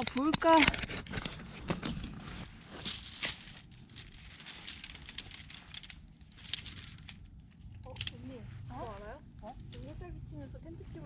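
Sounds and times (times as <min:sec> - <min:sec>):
tent poles clicking: 0:00.0 - 0:08.2
nylon fabric crinkling: 0:02.1 - 0:10.0.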